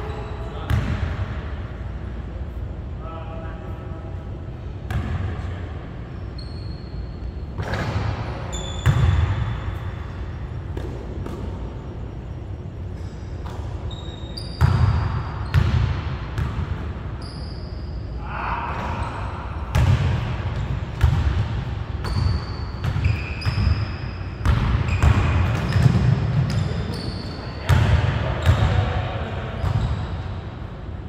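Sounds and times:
sneaker squeaks: 0.0 - 1.0, 4.9 - 21.2, 22.0 - 28.8, 29.5 - 30.7.

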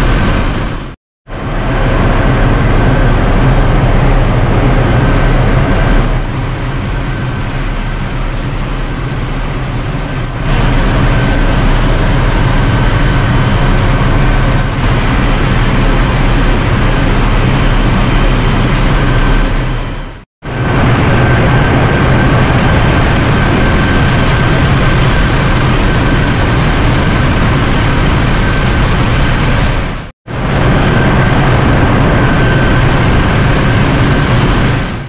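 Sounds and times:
diesel generator engine drone: 0.0 - 35.0
low hum: 0.0 - 35.0.

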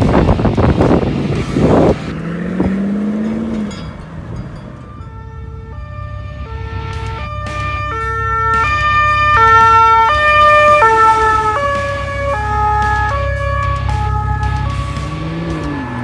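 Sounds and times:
truck engine: 0.0 - 16.0
two-tone fire engine siren: 4.6 - 16.0.

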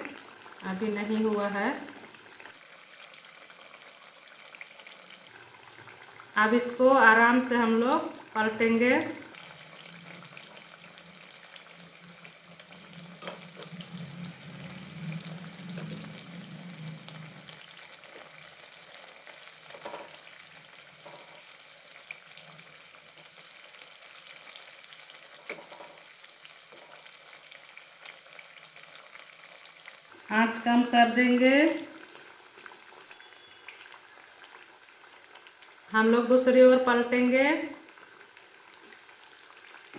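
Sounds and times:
oil sizzling and bubbling: 0.0 - 39.9
spoon knocking in pan: 13.1 - 13.8.

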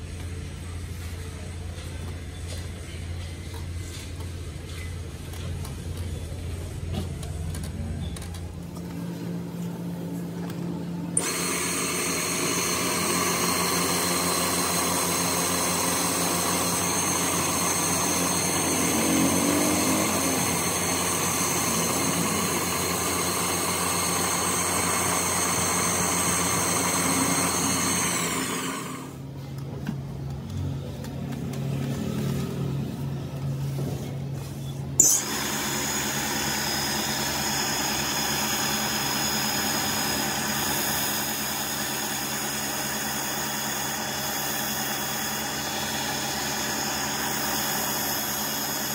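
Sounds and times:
buffing motor hum: 11.2 - 29.2, 35.0 - 48.9.

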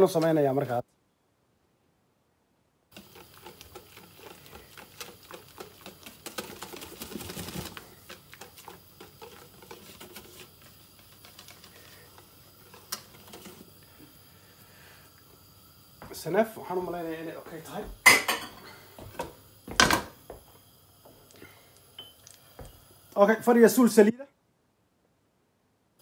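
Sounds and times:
whisk beating batter in bowl: 2.9 - 13.6.

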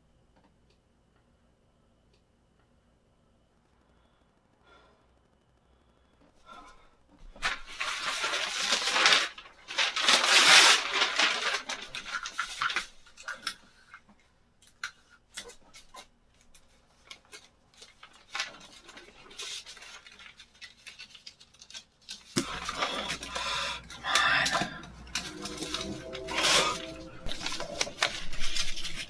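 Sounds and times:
fabric rustling and scraping: 7.2 - 13.3, 24.8 - 29.0.

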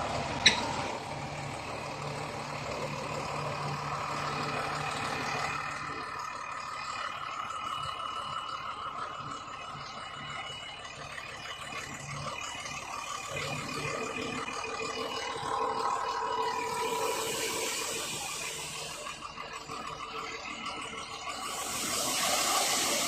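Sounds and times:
hydraulic hoist whine: 0.0 - 23.0
truck engine under load: 0.0 - 23.0
sand sliding hiss: 16.8 - 19.0, 21.4 - 23.0.

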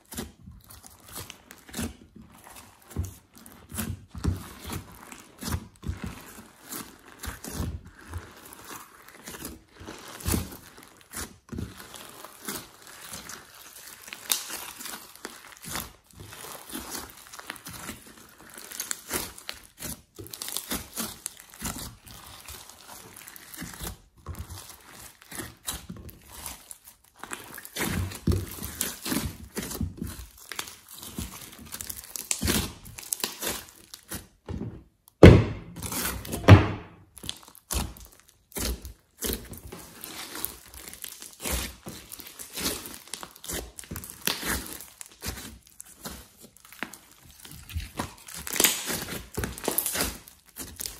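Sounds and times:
slime crackling and clicking: 37.2 - 50.9.

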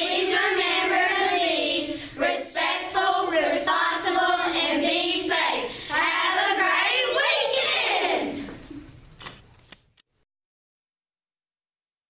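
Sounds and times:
children singing in unison: 0.0 - 8.3.

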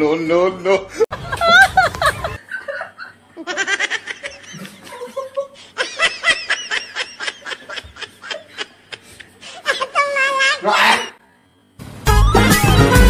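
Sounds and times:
people laughing hard: 1.1 - 10.2
high-pitched giggling: 1.2 - 11.1.

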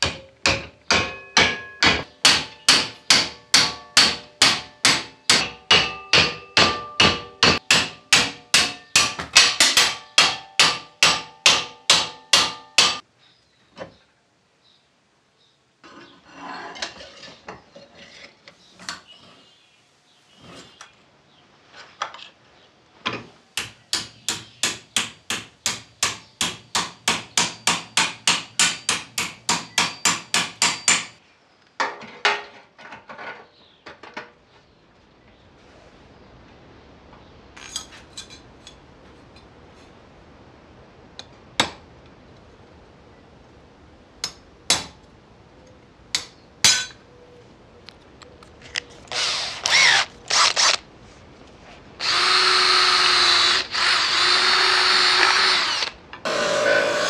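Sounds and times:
hammer striking steel: 0.0 - 13.0, 23.6 - 31.2, 46.2 - 47.0.

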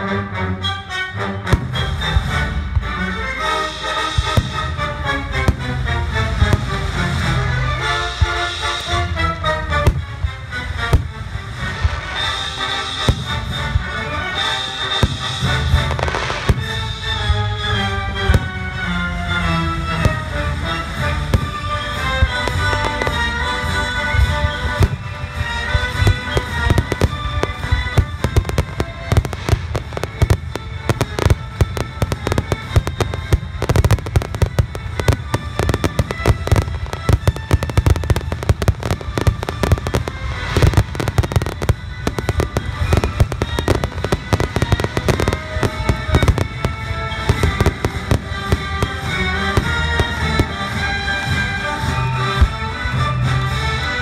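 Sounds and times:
music playing: 0.0 - 54.0
firework shells bursting: 21.4 - 51.5.

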